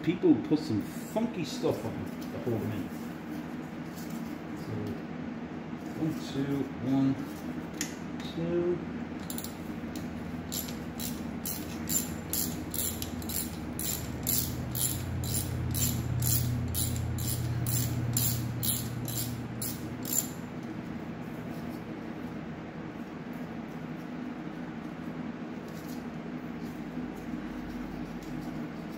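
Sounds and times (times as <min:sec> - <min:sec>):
socket ratchet clicking: 0:09.2 - 0:20.4.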